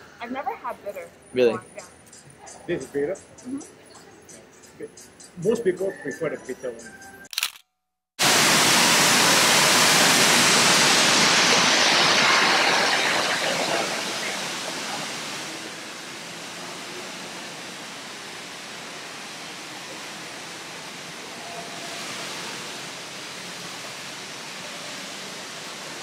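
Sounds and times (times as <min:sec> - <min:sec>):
rushing water: 0:08.2 - 0:26.0.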